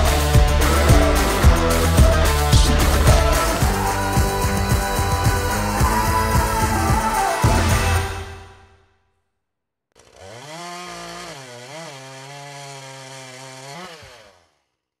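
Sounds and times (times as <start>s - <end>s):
chainsaw running at high revs: 0.0s - 8.2s, 10.0s - 14.9s.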